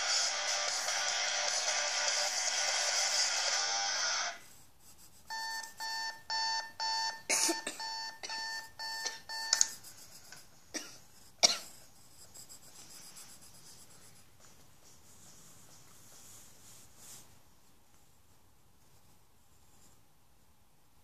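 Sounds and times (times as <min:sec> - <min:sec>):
electronic alarm beeping: 0:05.3 - 0:09.7.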